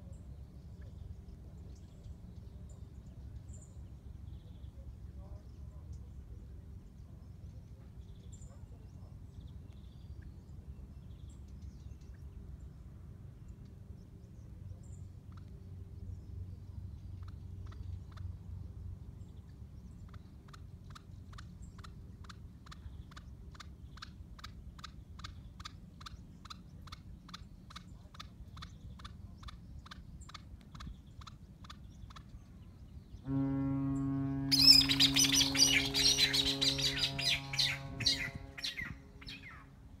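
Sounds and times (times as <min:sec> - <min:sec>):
loud steady low hum: 0:32.5 - 0:40.0
partridge calling harsh notes: 0:34.1 - 0:39.7
jumble of high-pitched sounds: 0:34.4 - 0:39.4.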